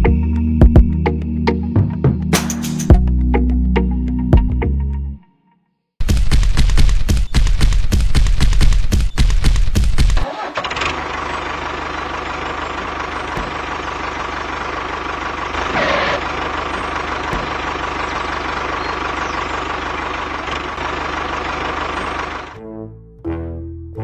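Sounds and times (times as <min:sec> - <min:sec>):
loud rapid knocking: 0:06.0 - 0:10.2, 0:12.4 - 0:22.5.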